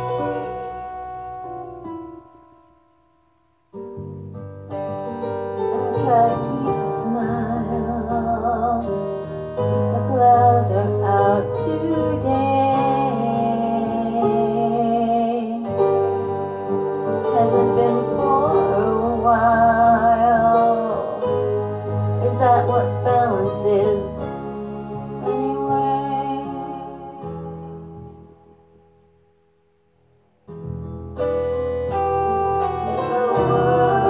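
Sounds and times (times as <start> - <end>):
person singing with vibrato: 0.0 - 1.8, 5.5 - 28.5, 32.5 - 34.0
instrumental backing music: 0.0 - 34.0.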